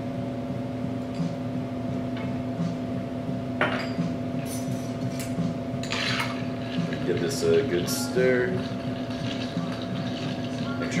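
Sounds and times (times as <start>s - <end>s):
steady background hum: 0.0s - 11.0s
glass clinking on counter: 3.6s - 4.8s.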